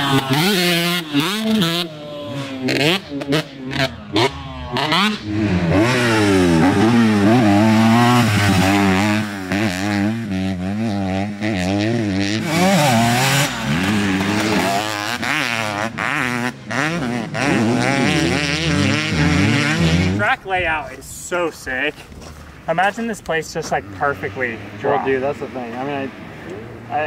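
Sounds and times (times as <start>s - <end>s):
dirt bike engine revving: 0.0s - 20.4s, 23.6s - 27.0s.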